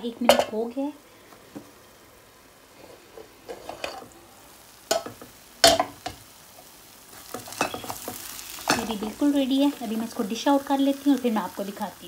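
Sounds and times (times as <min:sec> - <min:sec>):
metal lid clattering on pan: 0:03.5 - 0:04.0.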